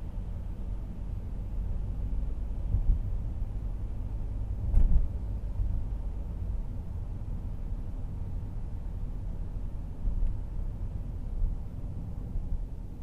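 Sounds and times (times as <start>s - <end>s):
car cabin road rumble: 0.0s - 13.0s
thump: 4.7s - 5.1s.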